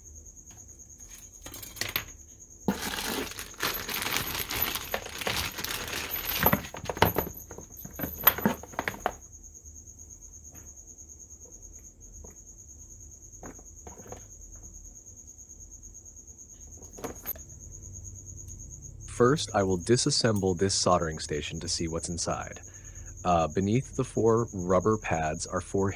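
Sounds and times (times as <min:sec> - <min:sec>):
plastic bag crinkling: 0:02.7 - 0:07.3.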